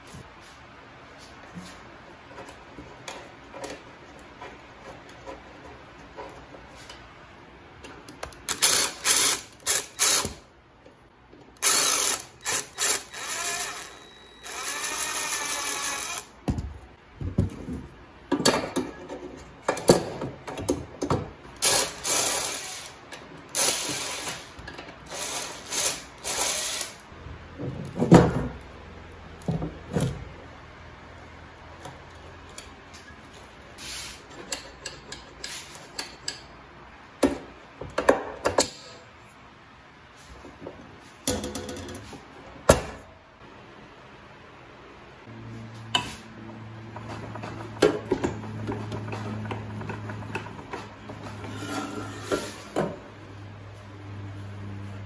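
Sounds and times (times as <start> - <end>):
impact driver bursts: 11.6 - 16.3.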